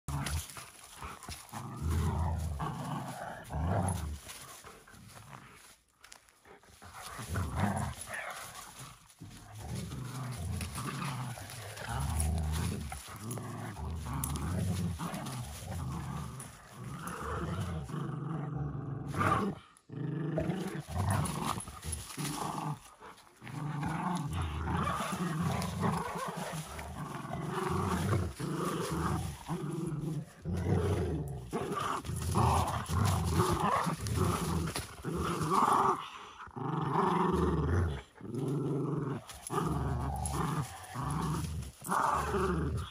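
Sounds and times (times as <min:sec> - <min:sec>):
dogs growling in play: 0:00.0 - 0:42.9.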